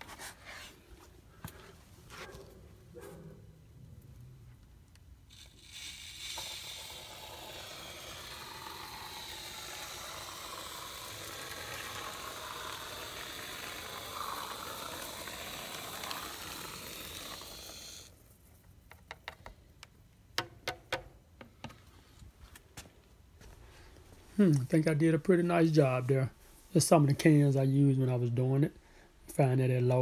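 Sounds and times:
spray foam can hissing: 5.3s - 18.1s.

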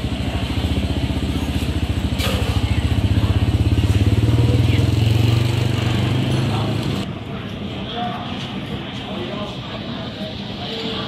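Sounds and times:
motorcycle engine running: 0.0s - 7.1s.

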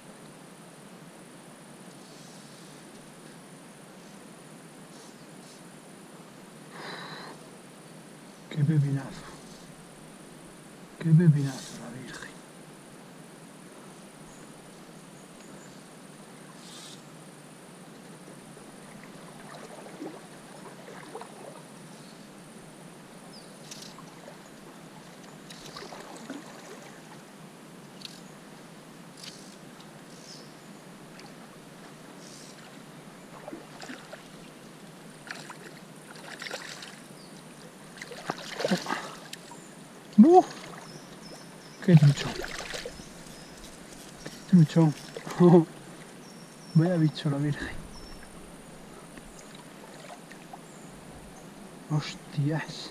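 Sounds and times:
river water flowing: 2.8s - 52.9s
small splashes and clicks: 25.0s - 26.8s, 28.0s - 28.2s, 33.4s - 37.0s, 38.0s - 39.5s, 42.0s - 46.1s
fish thrashing and splashing: 38.0s - 39.3s, 42.2s - 43.0s.

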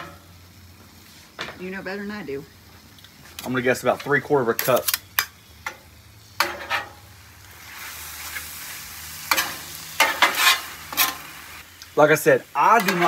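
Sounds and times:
food sizzling on griddle: 0.0s - 13.0s
metal spatulas scraping steel: 6.4s - 7.0s, 9.3s - 11.2s, 12.8s - 13.0s.

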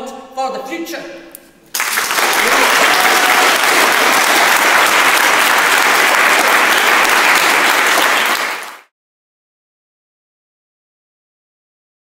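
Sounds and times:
audience applauding: 1.7s - 8.9s.

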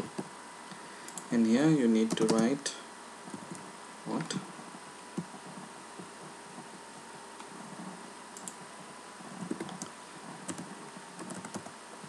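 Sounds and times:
faint microphone hiss: 0.0s - 12.0s
computer clicks: 1.0s - 1.3s, 2.1s - 2.5s, 8.4s - 8.6s.

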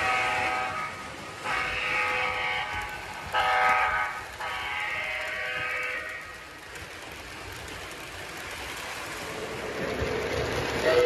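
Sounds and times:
model train chime horn: 0.0s - 6.4s
model train rumbling on track: 0.0s - 11.0s.

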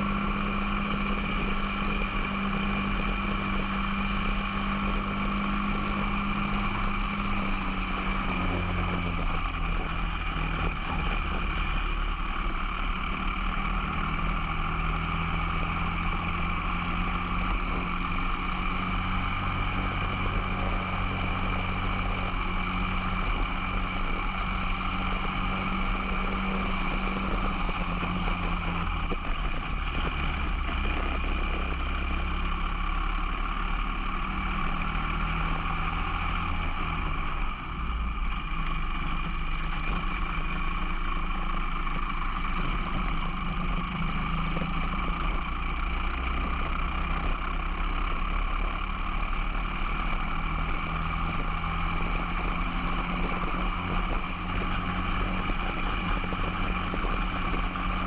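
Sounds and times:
kart engine running at racing speed: 0.0s - 58.0s.

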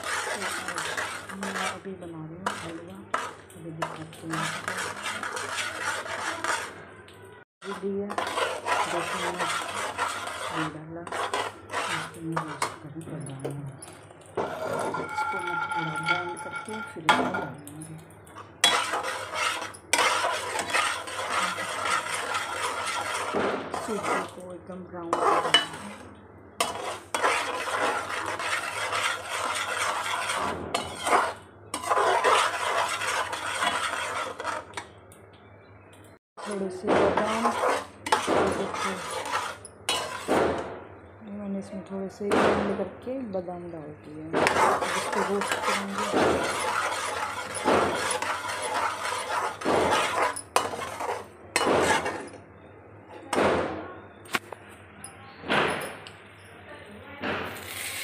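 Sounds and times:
spoon scraping steel pan: 0.0s - 6.8s, 7.6s - 17.7s, 18.3s - 34.9s, 36.4s - 40.6s, 44.4s - 52.4s.

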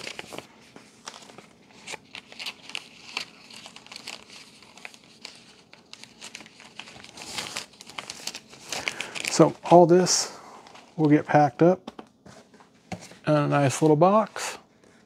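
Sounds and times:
plastic bags crinkling: 0.0s - 10.2s.

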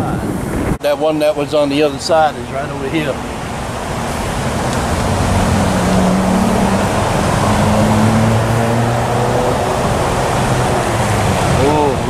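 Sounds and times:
fountain spray rushing: 0.0s - 12.0s
low engine hum: 3.2s - 12.0s.

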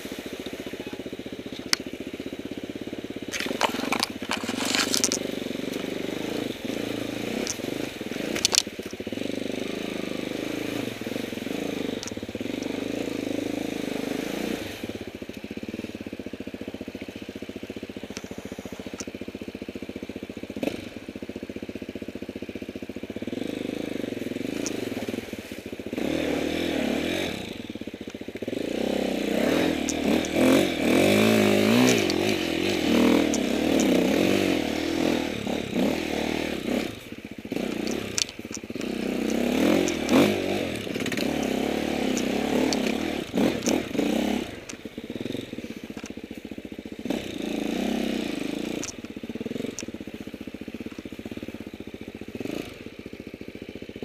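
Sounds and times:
motorcycle engine revving: 0.0s - 54.0s
motorcycle knocking over ground: 3.3s - 5.2s.

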